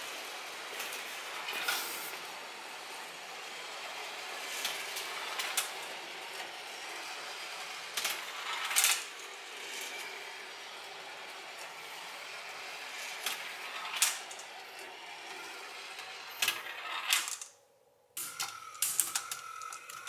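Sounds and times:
marbles rolling on plastic track: 0.0 - 17.6, 18.2 - 20.0
marbles clattering: 13.2 - 14.6, 15.5 - 17.6, 18.2 - 20.0.

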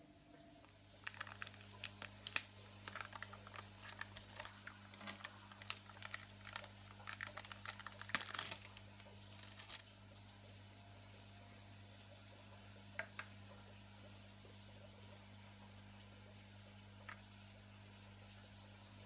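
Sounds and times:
low steady hum: 0.0 - 19.0
plastic cup crinkling: 0.6 - 9.9.

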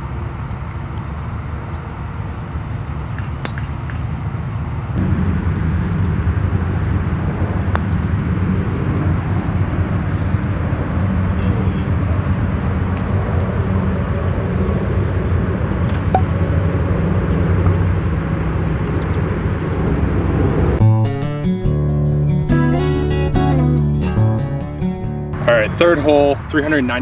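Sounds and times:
low outdoor rumble: 0.0 - 27.0.

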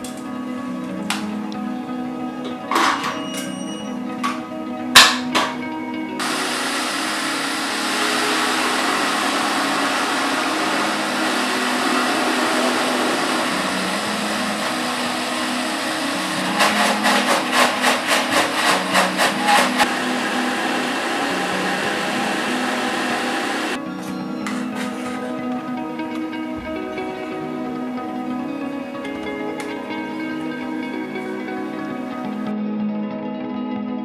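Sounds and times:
mixer grinder motor running: 6.2 - 32.4.

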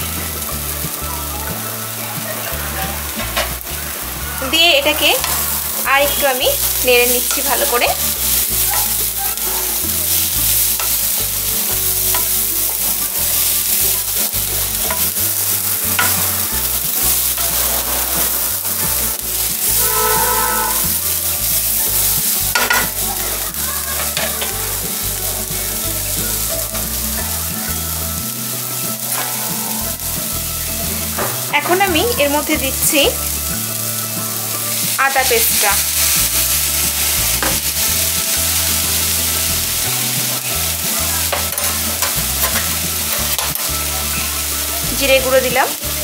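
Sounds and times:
lentils sizzling in oil: 0.0 - 46.0
spatula scraping a pan: 4.9 - 21.6.

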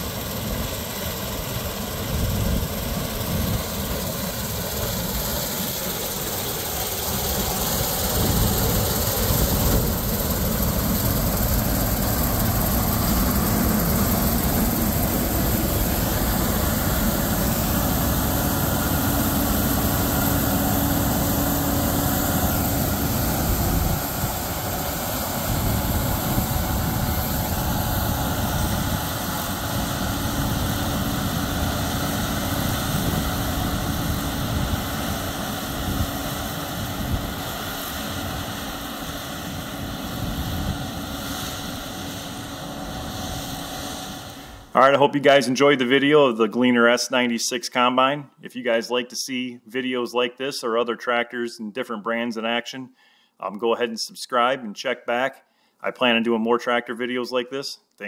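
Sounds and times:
combine harvester running: 0.0 - 45.4.

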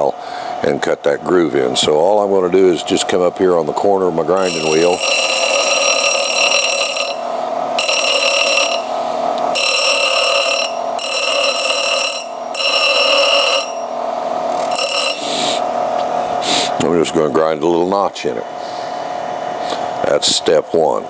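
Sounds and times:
grinding wheel whine: 0.0 - 20.1
high ringing grinding screech: 4.3 - 15.8.

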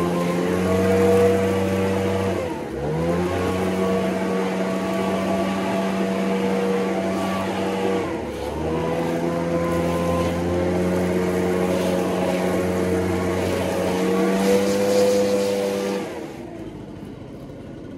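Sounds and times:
leaf blower running: 0.0 - 17.9.

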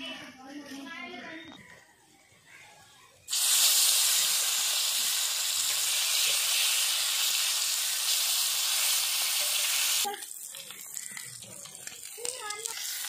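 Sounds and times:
fish sizzling in hot oil: 3.3 - 13.0.

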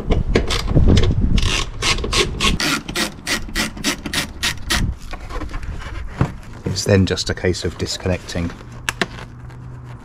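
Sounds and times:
ratchet screwdriver rasping: 1.4 - 4.9.

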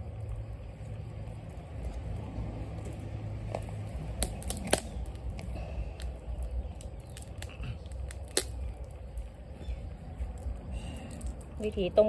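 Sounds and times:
wood fire crackling: 0.0 - 12.0
sharp wood snaps: 3.5 - 9.2.

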